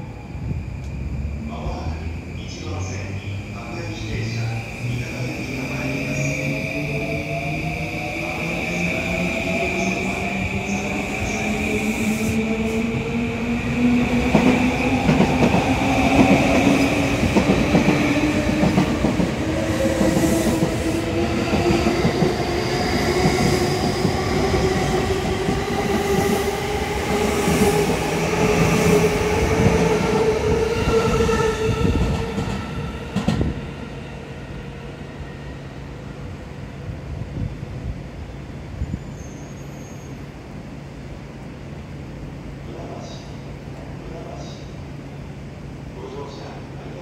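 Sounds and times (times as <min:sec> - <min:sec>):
train wheels rumbling on rails: 0:03.9 - 0:34.5.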